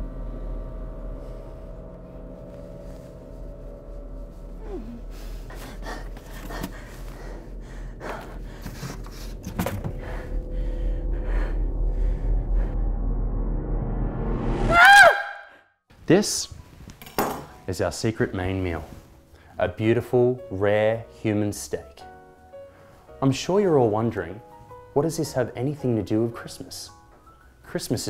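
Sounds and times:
low steady hum: 0:00.0 - 0:13.7
woman gasping and breathing heavily: 0:04.6 - 0:12.5.

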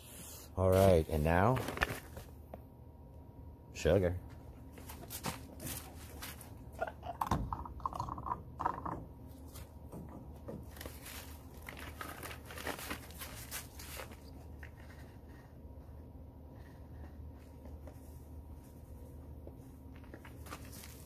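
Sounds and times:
plastic bag crinkling: 0:10.7 - 0:14.8.

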